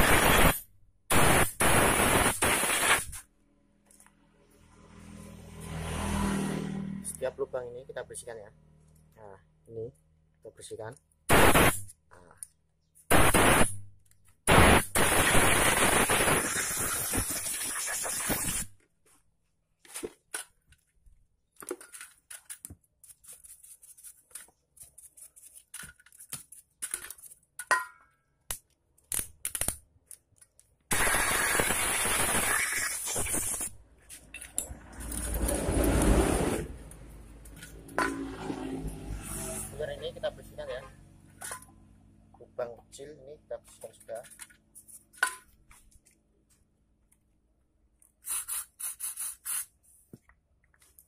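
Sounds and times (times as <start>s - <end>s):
hissing spray: 0.0s - 3.2s, 11.3s - 11.8s, 13.1s - 13.8s, 14.5s - 18.7s, 30.9s - 33.8s, 48.2s - 49.7s.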